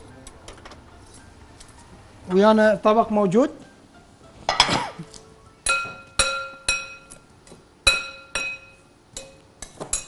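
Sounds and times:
utensil clinking on dishware: 5.6 - 7.2, 7.8 - 10.0.

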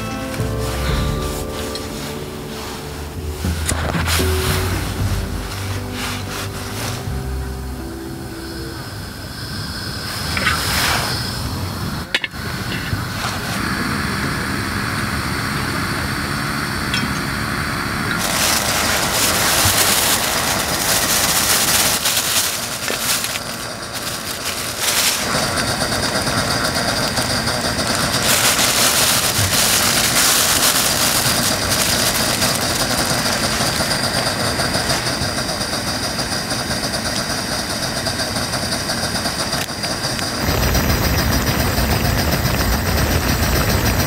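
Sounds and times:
liquid boiling and bubbling: 16.3 - 44.0.

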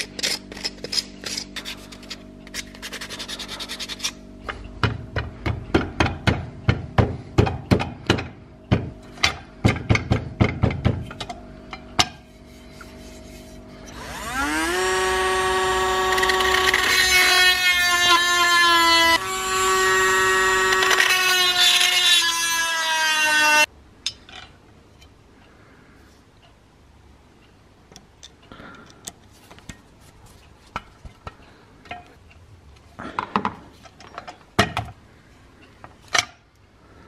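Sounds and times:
power drill boring into wood: 13.9 - 23.7.

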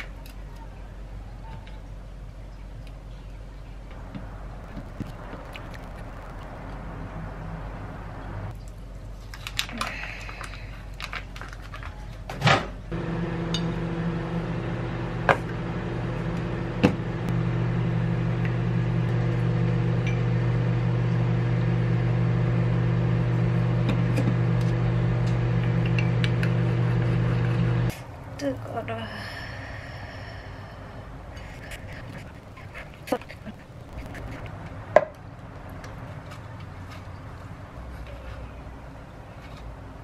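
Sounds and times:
plastic film crinkling: 4.6 - 6.7, 31.6 - 34.5
microwave oven humming: 12.9 - 27.9.

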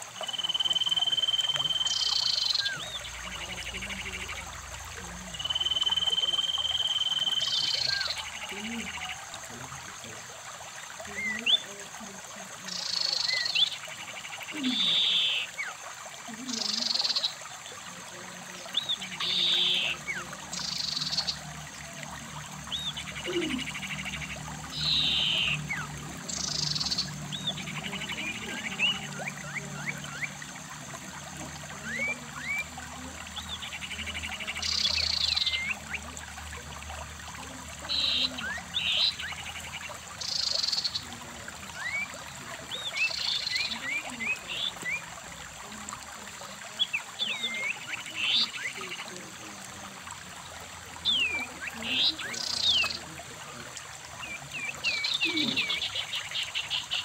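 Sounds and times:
stream running over rocks: 0.0 - 57.0
thin rising bird chirps: 0.2 - 3.5, 5.4 - 9.3, 18.7 - 30.6
buzzy bird calls: 22.6 - 30.4.

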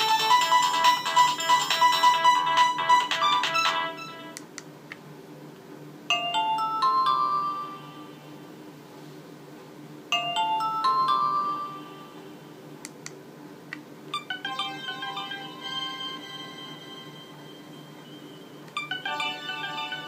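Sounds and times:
phone ringtone electronic notes: 0.0 - 4.4, 6.1 - 8.3, 10.1 - 12.2, 14.2 - 20.0.

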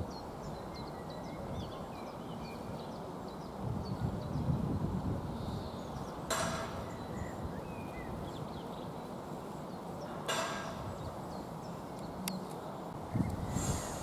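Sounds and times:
brief rush of noise: 13.5 - 14.0.

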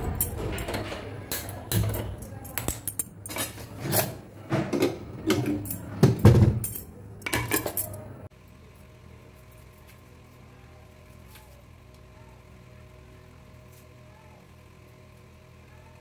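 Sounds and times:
kitchen utensils and dishes clattering: 0.0 - 8.3.

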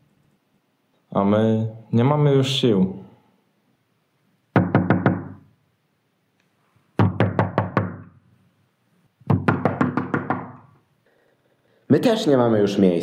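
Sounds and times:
knocking on a door: 4.6 - 5.4, 7.0 - 8.0, 9.3 - 10.6.

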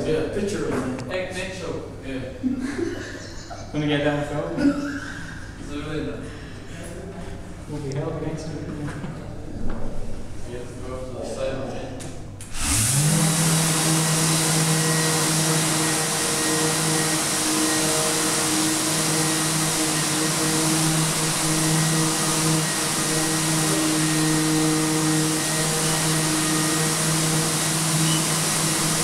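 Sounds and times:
dust extractor air hiss: 12.5 - 29.0
orbital sander motor hum: 12.5 - 29.0.

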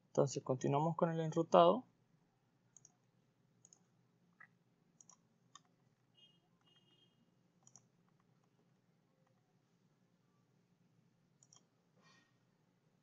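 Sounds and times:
faint computer mouse clicks: 2.8 - 3.0, 3.6 - 3.9, 5.0 - 5.7, 7.6 - 8.5, 11.4 - 11.7.

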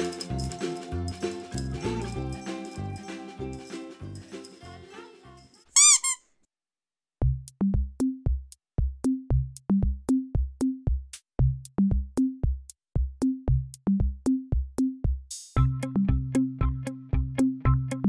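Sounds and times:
drum machine beat: 7.2 - 17.4
low bass notes: 15.6 - 18.0.

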